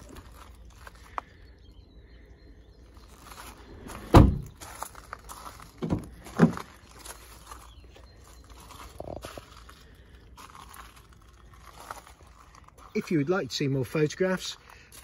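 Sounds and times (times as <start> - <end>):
footsteps on gravel: 0.0 - 1.6, 2.8 - 15.0
car door shutting: 4.0 - 4.6, 5.8 - 6.6.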